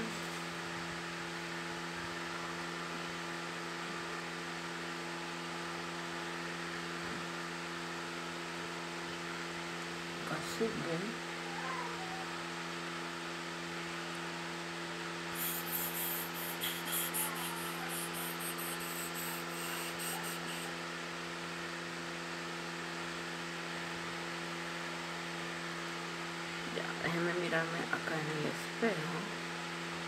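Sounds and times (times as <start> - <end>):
low electrical hum: 0.0 - 30.0
makeup brush sweeping face: 15.4 - 20.7.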